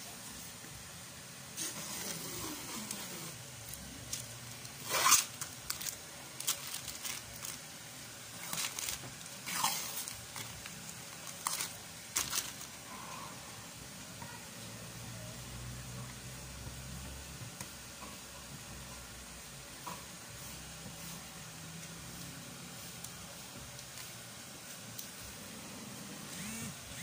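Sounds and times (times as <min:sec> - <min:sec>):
vinyl film ripping and crinkling: 0:01.6 - 0:12.8.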